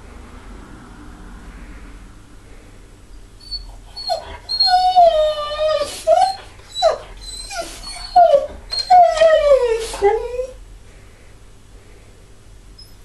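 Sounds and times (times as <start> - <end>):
dog crying and whining: 3.4 - 10.6, 12.8 - 13.0.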